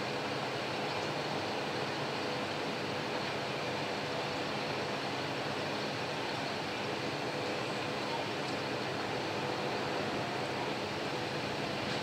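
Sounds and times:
distant diesel railcar engine drone: 0:00.0 - 0:12.0
outdoor background noise: 0:00.0 - 0:12.0.

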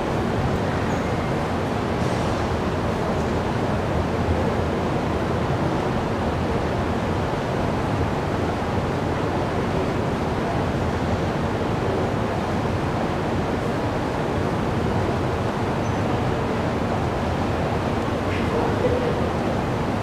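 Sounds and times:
station platform rumbling roar: 0:09.3 - 0:20.0.

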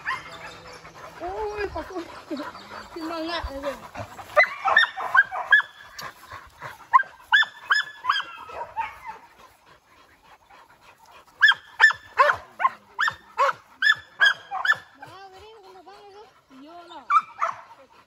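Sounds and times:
dogs barking in high yelps: 0:00.0 - 0:09.6, 0:11.0 - 0:17.9.

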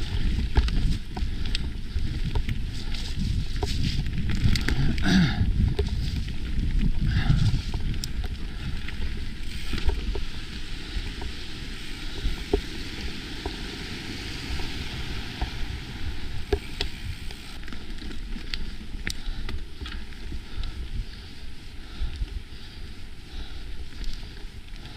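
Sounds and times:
wind on microphone: 0:00.0 - 0:17.6
bike clicks and rattles: 0:00.0 - 0:24.9.

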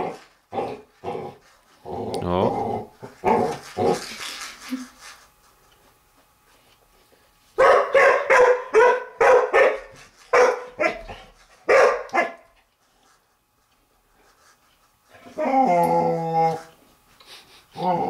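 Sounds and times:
puppy barking: 0:07.6 - 0:11.1, 0:11.7 - 0:12.5.

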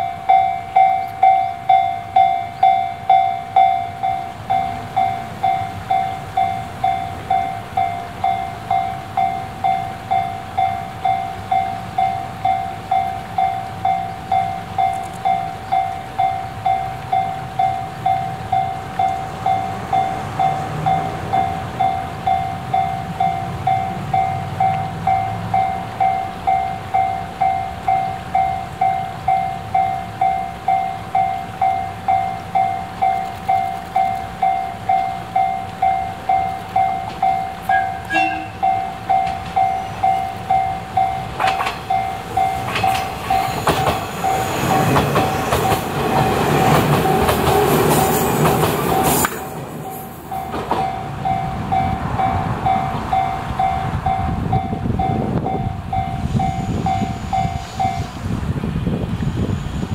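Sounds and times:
level crossing warning bell: 0:00.0 - 0:58.2
train rushing and clattering past: 0:00.0 - 0:59.9
train horn note: 0:37.0 - 0:40.0.

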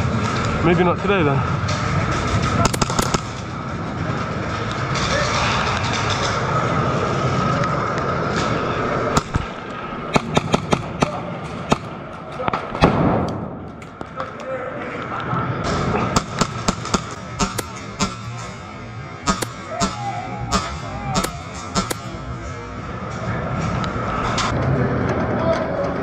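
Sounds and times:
airsoft gunfire cracks: 0:02.6 - 0:03.4, 0:10.1 - 0:11.9, 0:16.2 - 0:18.6, 0:19.3 - 0:22.2
background din: 0:16.2 - 0:23.7
bb hits: 0:19.3 - 0:22.2.

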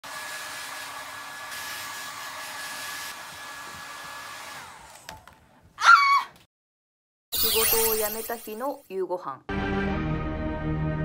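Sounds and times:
hair dryer blowing: 0:00.0 - 0:05.3.

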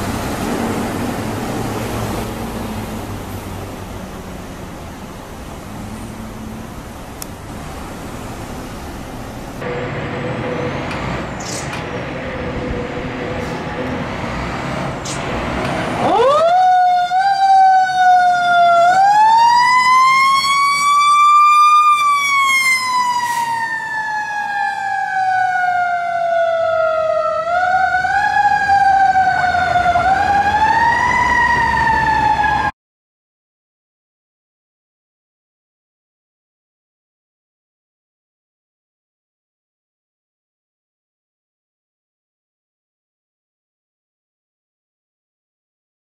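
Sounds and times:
truck engine and road noise: 0:00.0 - 0:32.8
mechanical siren wailing: 0:16.0 - 0:32.7.

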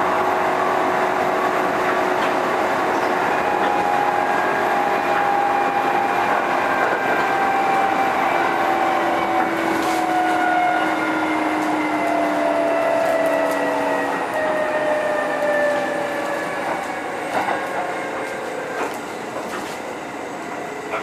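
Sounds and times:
train motor whine: 0:00.0 - 0:21.0
train running rumble: 0:00.0 - 0:21.0.

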